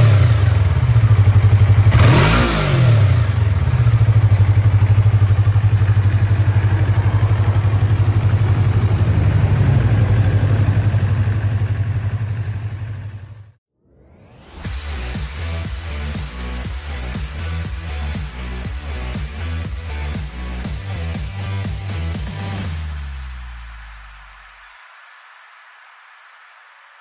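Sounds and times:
motorcycle engine idling: 0.0 - 13.6.

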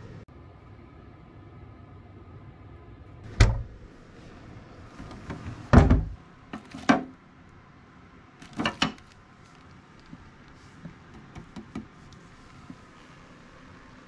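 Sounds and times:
fridge door shutting: 3.3 - 3.8, 5.0 - 7.1.

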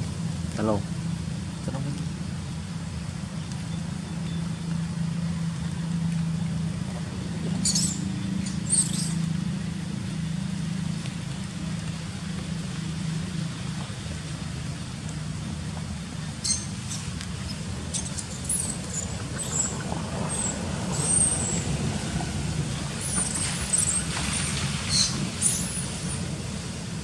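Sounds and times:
monkey squeaks: 7.6 - 9.2, 16.4 - 19.7, 24.9 - 25.6.

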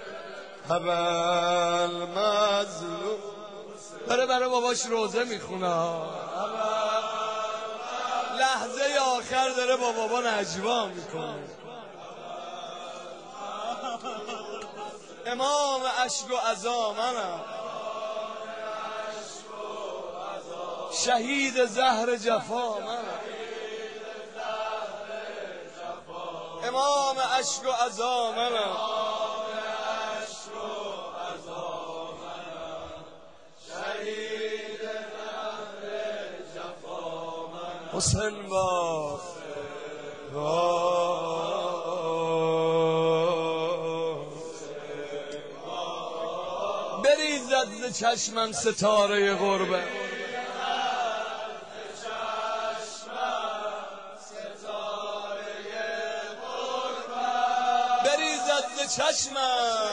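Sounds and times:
mourning lament chanted: 0.0 - 59.9.

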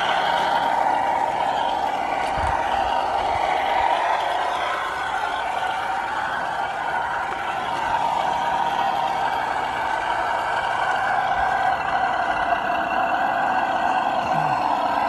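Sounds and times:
rc car motor whine: 0.0 - 15.0.

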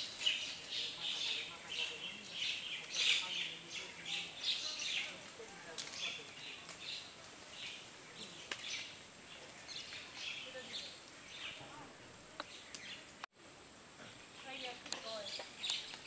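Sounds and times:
bird calls: 0.0 - 13.2, 14.0 - 16.0.

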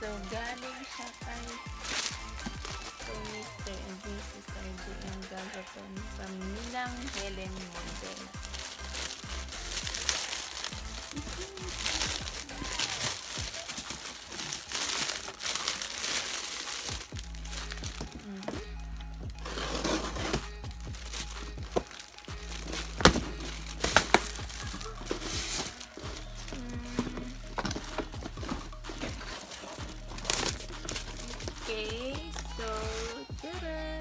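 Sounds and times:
plastic wrap and paper crinkling: 0.0 - 33.6
background music: 0.0 - 34.0
cardboard box snapping: 22.6 - 29.6.

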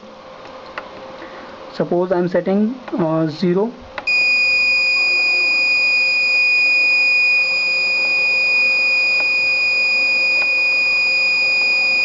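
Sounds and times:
buzzer high-pitched tone: 4.1 - 12.0.

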